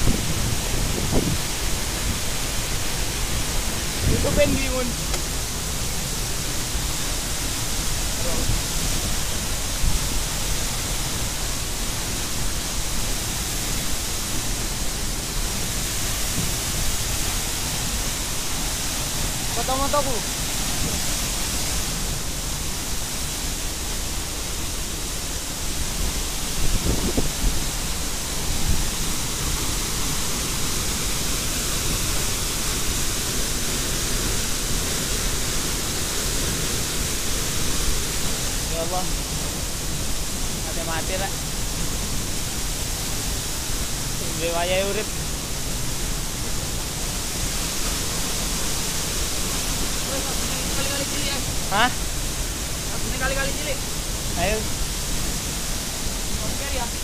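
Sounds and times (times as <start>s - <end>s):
waterfall rushing onto rocks: 0.0s - 57.0s.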